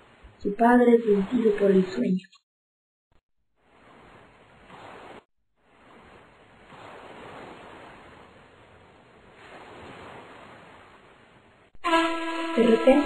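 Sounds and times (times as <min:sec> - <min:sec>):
waves washing against boat: 0:03.6 - 0:13.0.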